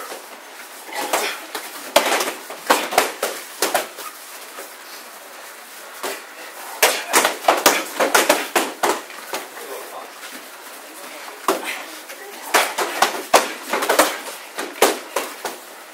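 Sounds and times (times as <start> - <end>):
kicks and punches on pads: 1.0 - 4.0, 6.8 - 9.5, 12.5 - 15.6.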